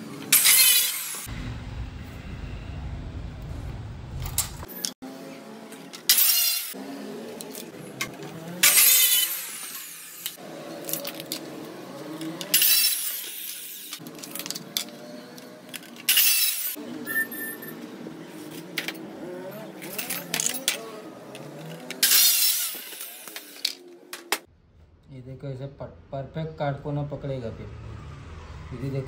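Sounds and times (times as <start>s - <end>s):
cutter blade cutting: 0.3s - 1.3s, 5.7s - 14.1s, 16.0s - 16.8s, 19.8s - 24.5s.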